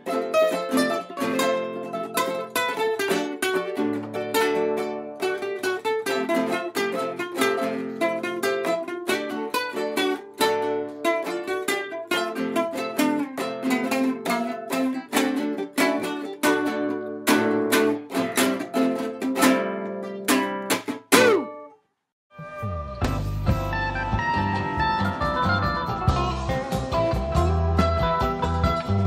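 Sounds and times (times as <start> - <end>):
ukulele picking: 0.0 - 21.8, 22.9 - 29.0.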